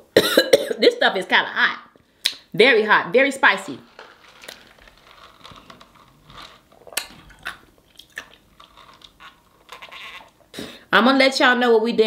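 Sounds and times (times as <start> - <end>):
sipping from plastic cup: 4.1 - 10.8
chewing and mouth sounds: 6.7 - 10.5.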